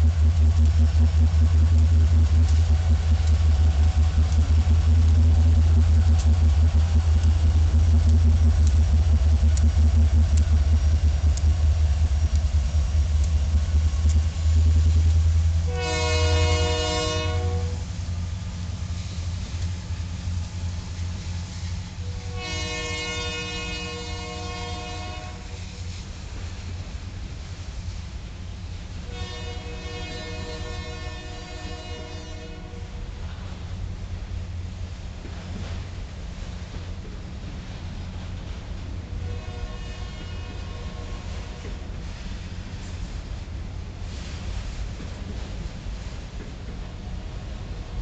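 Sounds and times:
train wheels clicking over rails: 0:00.0 - 0:15.8, 0:25.4 - 0:29.1, 0:40.0 - 0:48.0
diesel locomotive engine rumble: 0:00.0 - 0:48.0
multi-chime locomotive horn: 0:15.7 - 0:17.8, 0:22.0 - 0:25.9, 0:29.1 - 0:33.1, 0:39.2 - 0:41.7.

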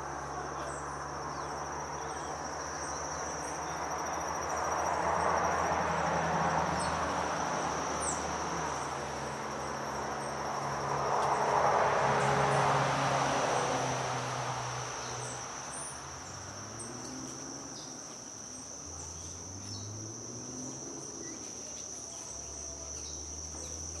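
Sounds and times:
cricket trilling: 0:00.0 - 0:24.0.

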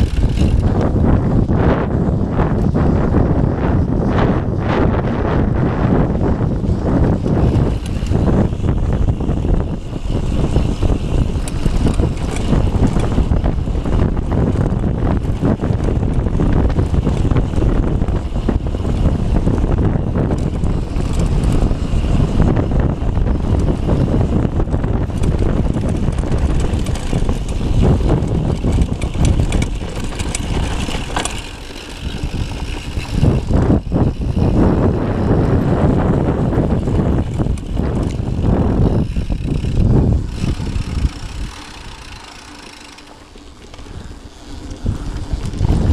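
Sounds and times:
bike rattling over bumps: 0:00.0 - 0:45.9
bike tyres on dirt: 0:00.0 - 0:45.9
wind buffeting microphone: 0:00.0 - 0:45.9.

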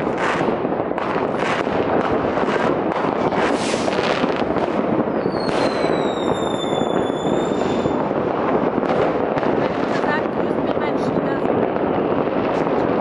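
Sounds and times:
whistling firework: 0:00.0 - 0:10.1
distant fireworks crackling: 0:00.0 - 0:13.0.

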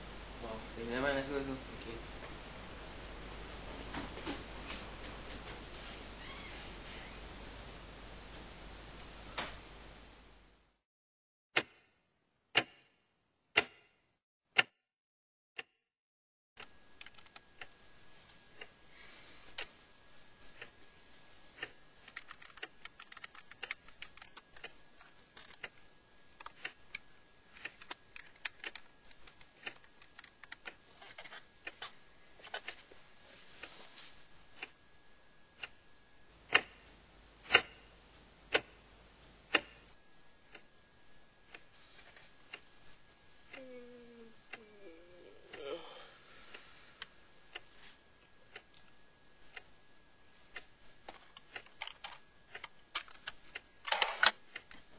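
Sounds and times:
low hiss: 0:00.0 - 0:10.6
wall clock ticking: 0:13.6 - 0:13.9, 0:35.6 - 0:35.8, 0:36.5 - 0:36.8, 0:37.4 - 0:37.8, 0:38.5 - 0:38.8, 0:39.5 - 0:39.8, 0:49.4 - 0:49.8, 0:50.5 - 0:53.7
computer keyboard typing: 0:17.0 - 0:17.5, 0:21.6 - 0:25.8, 0:26.4 - 0:27.0, 0:27.6 - 0:31.8, 0:51.1 - 0:54.3.

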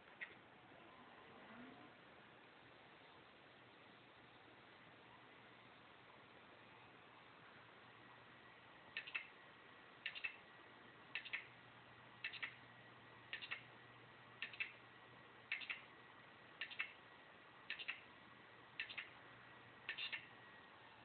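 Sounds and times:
faint steady whine: 0:00.0 - 0:21.0
hard drive clicking: 0:08.9 - 0:09.3, 0:10.0 - 0:10.5, 0:12.2 - 0:12.7, 0:13.3 - 0:13.7, 0:14.4 - 0:14.9.

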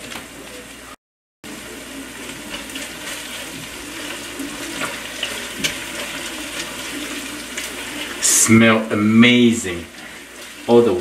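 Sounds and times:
sauce sizzling in oil: 0:01.4 - 0:11.0
wooden spatula scraping a pan: 0:02.2 - 0:11.0.

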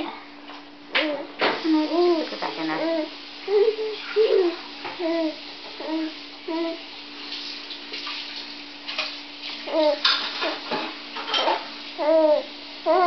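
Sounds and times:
steady low hum: 0:00.0 - 0:13.0
baby cooing: 0:01.0 - 0:06.8, 0:09.6 - 0:10.1, 0:12.0 - 0:13.0.

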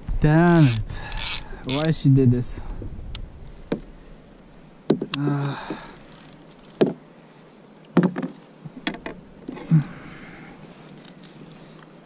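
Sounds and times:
knocks and thumps on kayak: 0:03.7 - 0:03.9, 0:04.9 - 0:05.9, 0:06.8 - 0:07.0, 0:08.0 - 0:09.6.

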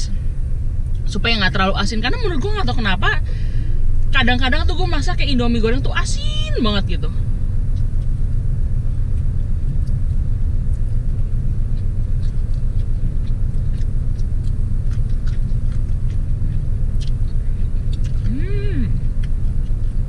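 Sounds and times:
car engine idling: 0:00.0 - 0:20.0
faint eating clicks: 0:09.1 - 0:20.0.

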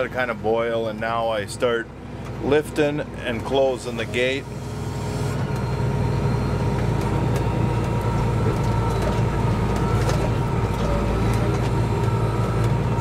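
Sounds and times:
tractor engine running under load: 0:00.0 - 0:13.0.

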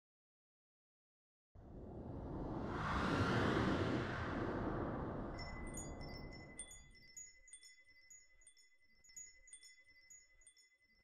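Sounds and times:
whoosh: 0:01.6 - 0:06.6
tinkling chime strikes: 0:05.4 - 0:11.0.

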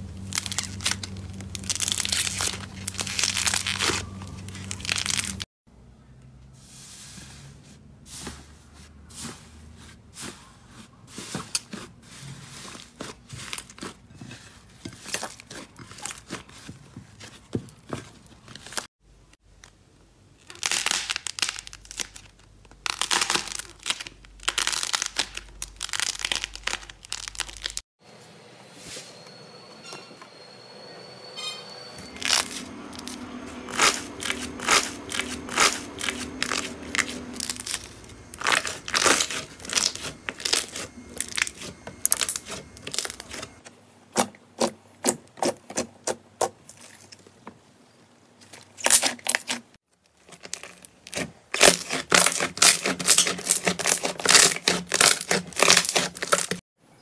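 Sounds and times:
slime popping and crackling: 0:00.2 - 0:05.4, 0:20.4 - 0:27.8, 0:32.2 - 0:43.4, 0:50.2 - 0:56.6.

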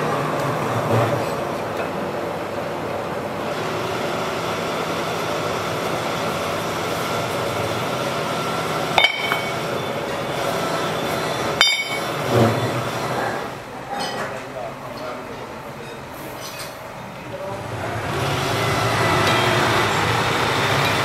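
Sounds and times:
workshop machinery running: 0:00.0 - 0:21.0
ringing clinks of steel: 0:09.0 - 0:09.6, 0:11.6 - 0:12.1.

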